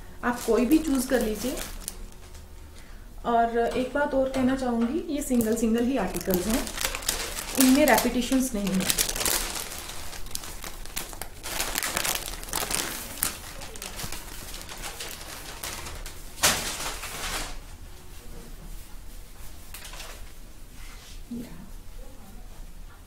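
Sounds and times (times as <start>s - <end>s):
fabric rustling and crinkling: 0.3s - 2.4s, 5.2s - 17.8s.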